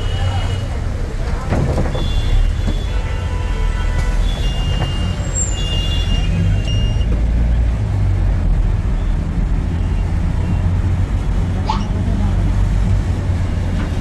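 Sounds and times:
bus engine rumbling: 0.0 - 14.0.

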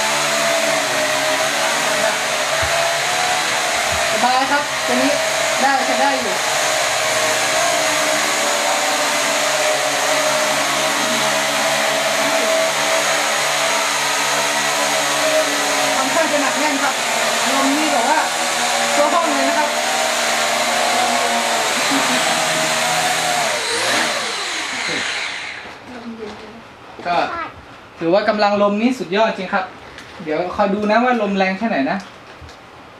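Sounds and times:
drone propellers whirring: 0.0 - 25.7.

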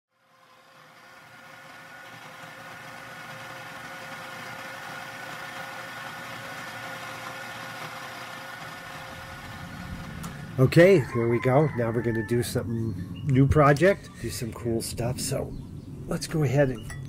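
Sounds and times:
steady mechanical hum: 0.1 - 17.0.

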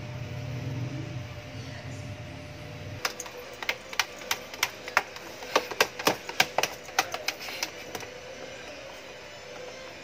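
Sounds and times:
dog claws scratching plastic: 3.0 - 8.1.

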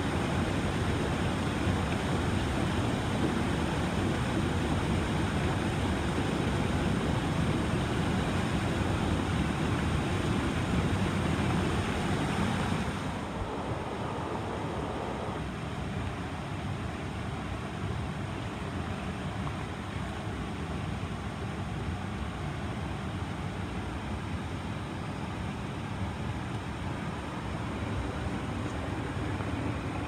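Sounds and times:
stream water rushing: 0.0 - 16.8.

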